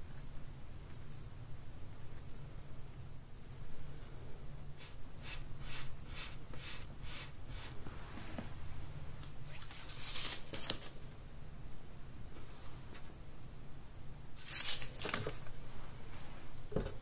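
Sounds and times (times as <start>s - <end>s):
kitchen sheet crinkling: 14.4s - 15.5s.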